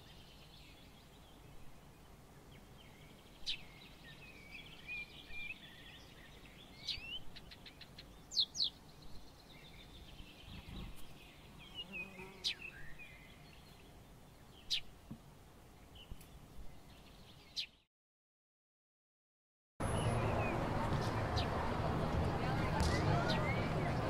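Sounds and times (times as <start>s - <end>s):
small birds chirping: 0.0s - 17.9s.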